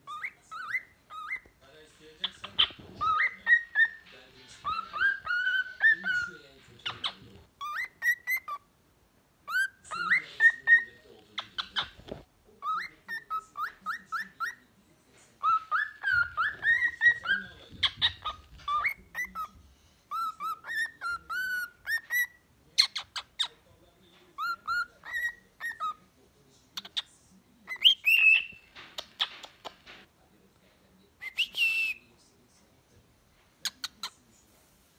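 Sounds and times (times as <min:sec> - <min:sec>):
cockatiel whistling song: 0:00.0 - 0:01.5, 0:02.2 - 0:08.6, 0:09.5 - 0:12.0, 0:12.6 - 0:14.6, 0:15.4 - 0:19.5, 0:20.1 - 0:23.5, 0:24.4 - 0:26.0, 0:27.7 - 0:29.5, 0:31.2 - 0:32.1.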